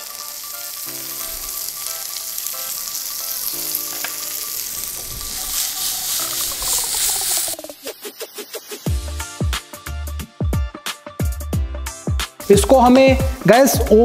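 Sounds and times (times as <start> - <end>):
food sizzling in oil: 0.0 - 10.0
music with a beat: 5.7 - 14.0
faint background music: 8.9 - 14.0.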